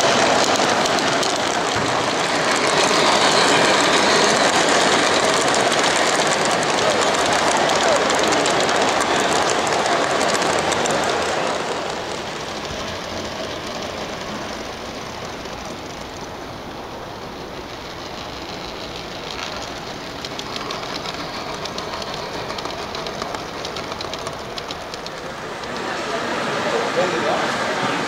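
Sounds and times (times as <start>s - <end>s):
model train rolling on track: 0.0s - 28.0s
train wheels clicking: 0.0s - 28.0s.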